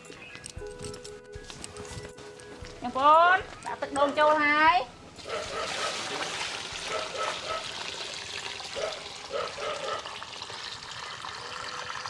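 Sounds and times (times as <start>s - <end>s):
liquid trickling and splashing: 5.2s - 12.0s.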